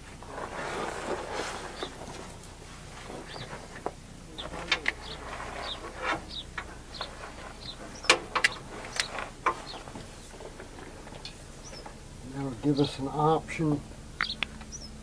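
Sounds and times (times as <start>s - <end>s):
cables knocking against metal: 5.9s - 12.0s.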